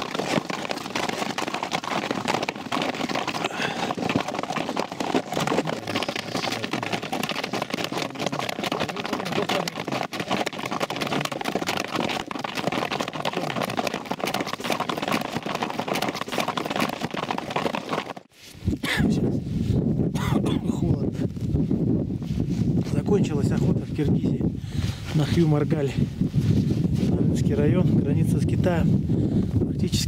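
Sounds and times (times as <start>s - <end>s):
strong wind buffeting microphone: 18.6s - 30.0s.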